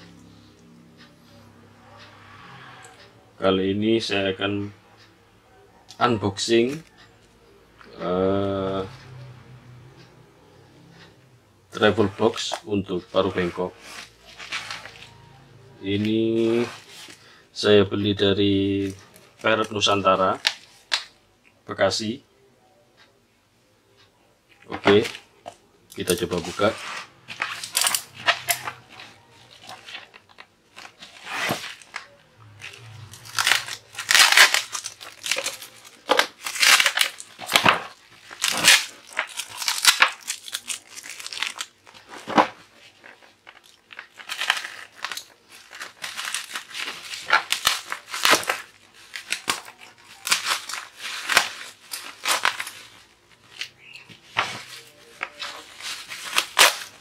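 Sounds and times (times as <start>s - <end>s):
plastic wrap crinkling: 11.8s - 15.3s, 25.9s - 57.0s
parcel ripping: 13.2s - 15.2s, 26.0s - 57.0s.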